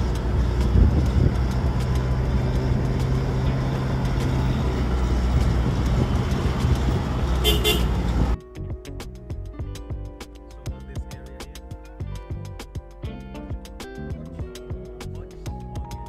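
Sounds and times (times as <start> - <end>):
car engine hum and road noise: 0.0 - 10.2.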